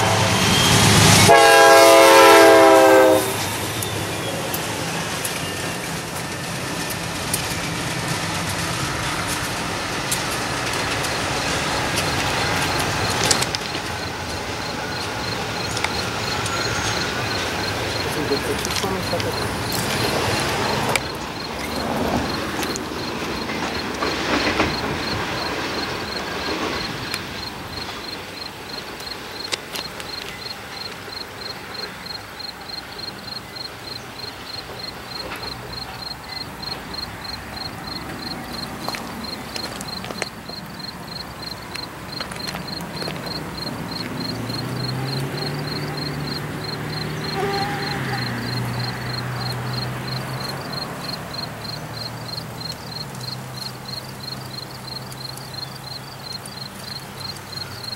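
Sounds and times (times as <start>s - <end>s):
locomotive engine drone: 0.0s - 57.9s
crickets chirping: 0.3s - 57.9s
broad rushing noise: 3.1s - 31.4s.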